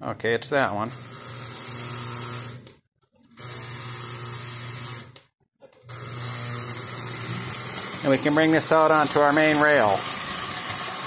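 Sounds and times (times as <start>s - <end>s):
model train electric buzz: 0.9s - 2.6s, 3.4s - 5.1s, 5.9s - 11.0s.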